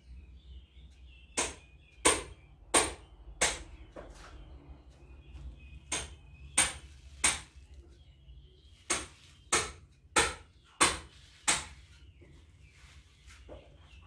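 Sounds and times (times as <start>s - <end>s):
sharp knocks: 5.9s - 7.5s, 8.9s - 11.8s.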